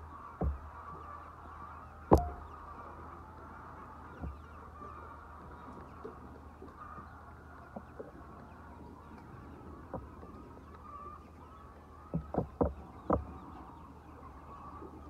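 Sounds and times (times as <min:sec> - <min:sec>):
hens clucking: 0:00.0 - 0:15.0
sharp knocks: 0:00.4 - 0:00.8, 0:02.1 - 0:02.6.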